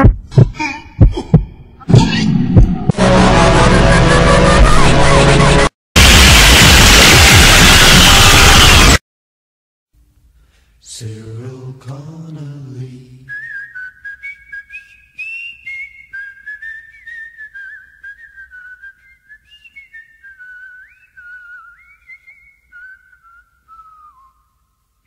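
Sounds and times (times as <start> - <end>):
person whistling a tune: 13.3 - 24.5.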